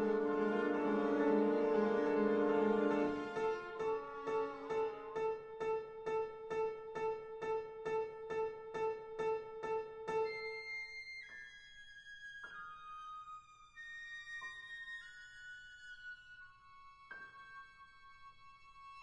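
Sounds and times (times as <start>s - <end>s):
chamber ensemble playing: 0.0s - 5.1s.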